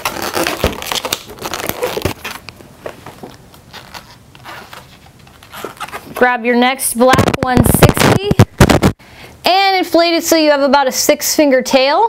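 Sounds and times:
balloons rubbing and crackling: 0:00.0 - 0:06.4, 0:07.0 - 0:09.0.

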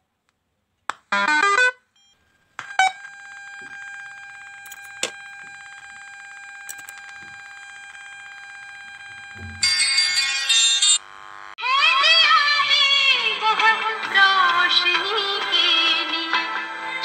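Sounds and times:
high-pitched electronic buzz: 0:02.6 - 0:11.6
clicks: 0:06.7 - 0:07.4.

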